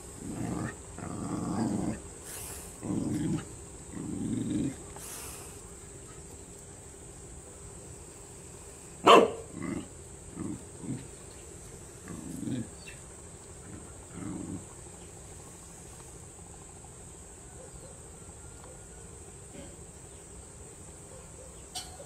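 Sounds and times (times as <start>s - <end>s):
dog barking: 9.0s - 9.5s, 17.6s - 18.1s, 21.1s - 21.6s.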